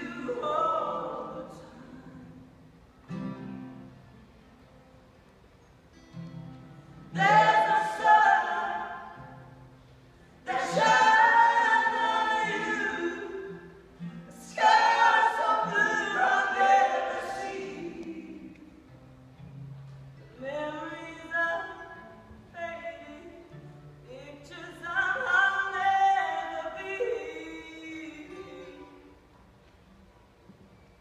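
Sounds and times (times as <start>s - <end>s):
vocal trio singing in harmony: 0.0s - 2.6s, 7.1s - 9.5s, 10.4s - 18.8s.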